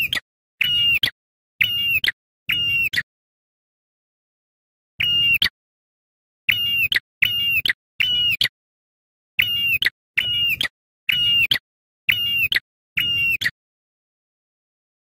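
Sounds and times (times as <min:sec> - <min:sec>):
bird shrill calls: 0:09.4 - 0:13.6.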